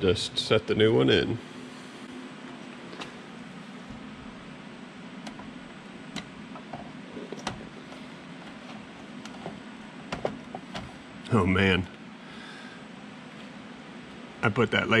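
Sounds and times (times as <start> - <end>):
low background hum: 0.0 - 15.0
plastic clicks and knocks: 9.2 - 10.9.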